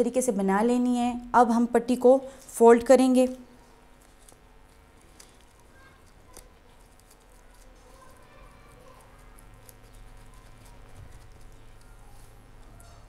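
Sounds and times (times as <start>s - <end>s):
gloved fingers clicking and rustling: 3.9s - 8.2s.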